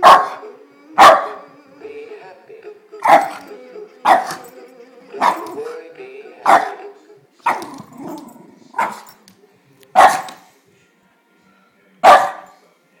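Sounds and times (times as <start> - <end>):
dog barking: 0.0 - 0.4, 1.0 - 1.4, 4.1 - 4.4, 6.5 - 6.8, 8.8 - 9.1, 10.0 - 10.5, 12.0 - 12.6
singing fish toy song: 0.4 - 7.4.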